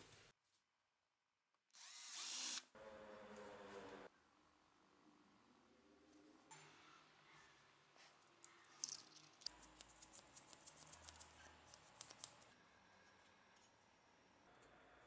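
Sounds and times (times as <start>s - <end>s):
metal parts clicking: 8.4s - 12.5s.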